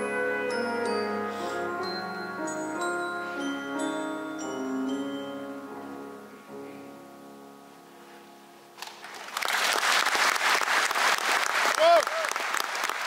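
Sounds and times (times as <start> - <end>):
audience applause: 8.8 - 13.0.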